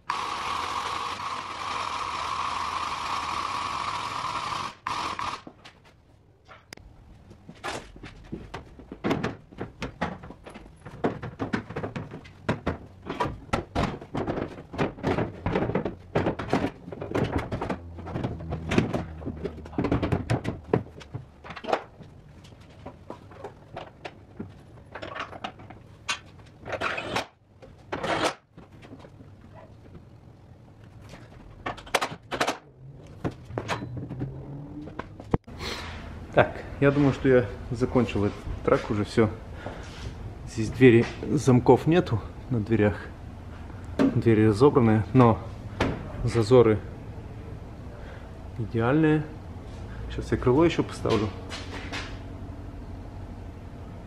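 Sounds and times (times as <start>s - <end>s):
cordless power tool bursts: 0.0s - 5.5s
door knocking and rattling: 8.4s - 22.0s.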